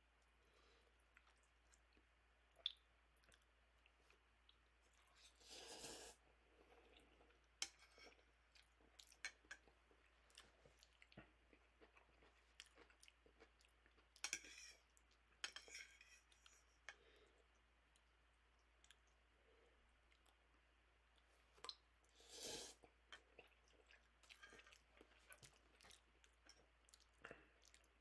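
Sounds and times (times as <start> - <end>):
chewing noodles: 2.6 - 15.2, 21.2 - 28.0.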